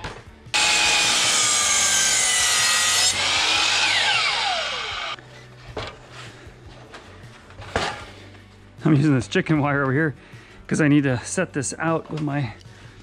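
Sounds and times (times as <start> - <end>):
circular saw cutting wood: 0.6 - 5.2
saw blade spinning down: 0.6 - 5.2.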